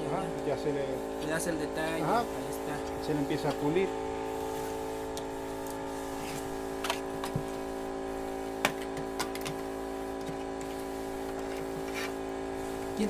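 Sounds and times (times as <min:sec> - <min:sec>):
machine hum: 0:00.0 - 0:13.0
tool scraping plaster: 0:11.4 - 0:12.2.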